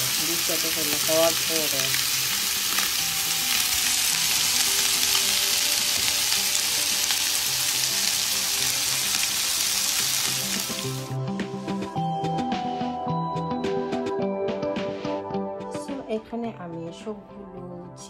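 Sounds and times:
chicken sizzling in hot oil: 0.0 - 11.2.

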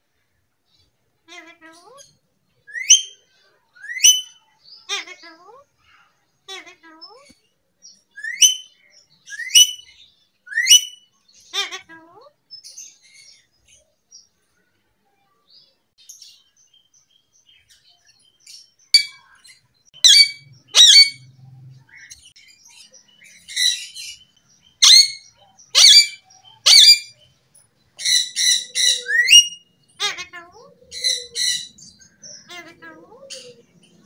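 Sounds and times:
parakeet screeching calls: 20.0 - 21.3, 24.8 - 27.2, 28.0 - 31.8.

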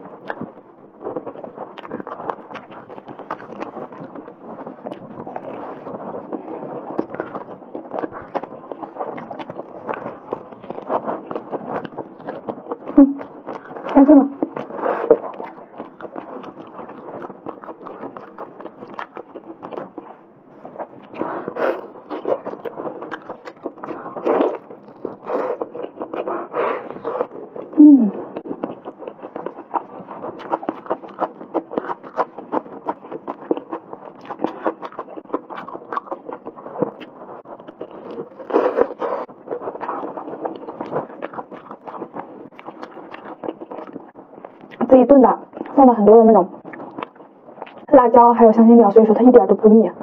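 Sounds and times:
wet chewing: 0.0 - 49.2
person humming: 27.8 - 28.4.

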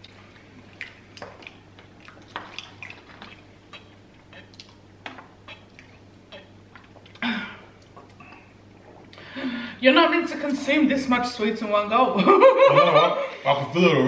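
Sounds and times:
people gulping water: 0.0 - 9.5.

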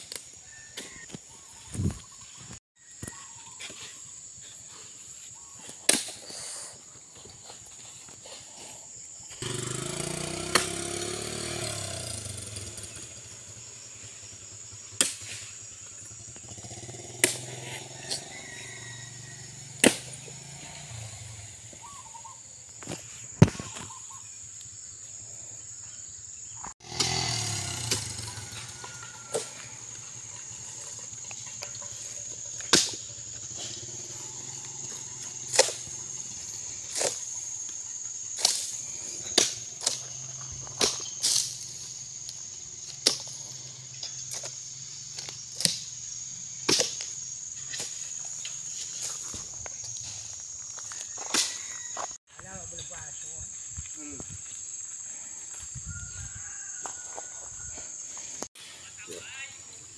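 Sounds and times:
high insect drone: 0.0 - 59.9
axe chopping: 5.9 - 6.2, 10.3 - 11.0, 15.0 - 15.4, 17.2 - 17.6, 19.8 - 20.2, 32.6 - 33.0, 39.3 - 40.0, 46.6 - 47.1.

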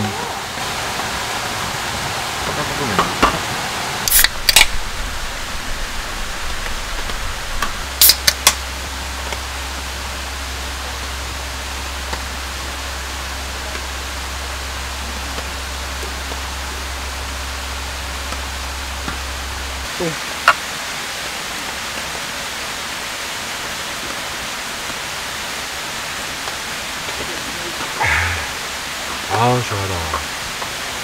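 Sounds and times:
rushing water: 0.0 - 31.0
sharp clicks: 4.1 - 4.8, 7.6 - 8.6.

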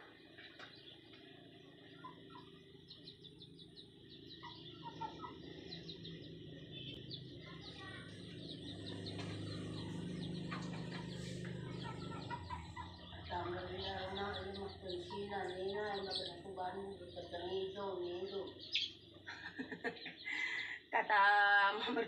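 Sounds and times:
small birds chirping: 0.0 - 22.0
chicken clucking: 4.2 - 7.2, 7.8 - 20.2.

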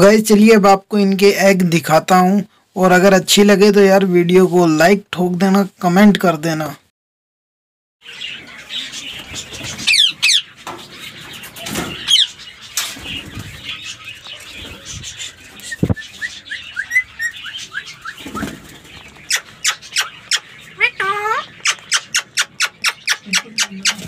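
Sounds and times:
parakeets squawking: 8.0 - 24.0.

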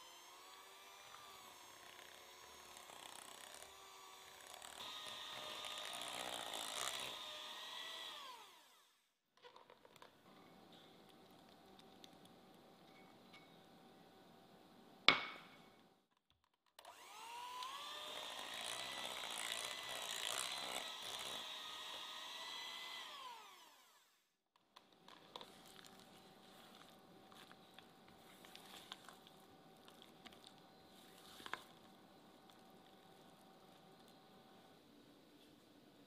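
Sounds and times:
electric hand mixer whining: 0.0 - 8.9, 16.8 - 24.2.

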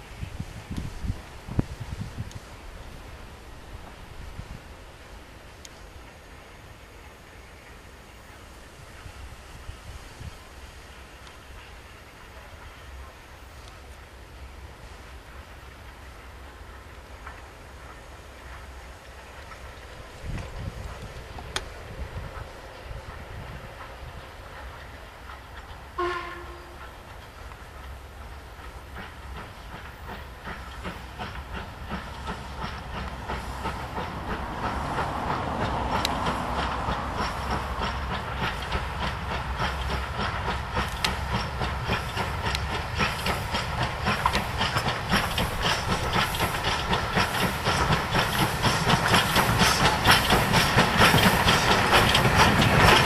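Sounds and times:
steam hissing: 0.0 - 53.0
steam locomotive exhaust beats: 0.0 - 53.0
train whistle toot: 26.0 - 26.9.

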